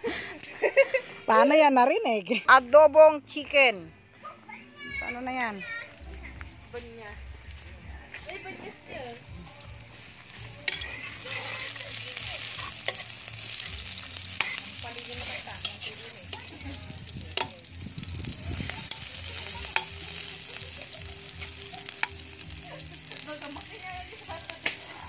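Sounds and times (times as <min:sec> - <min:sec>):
onions sizzling in hot oil: 0:05.1 - 0:25.0
metal spatula scraping a wok: 0:10.2 - 0:22.2.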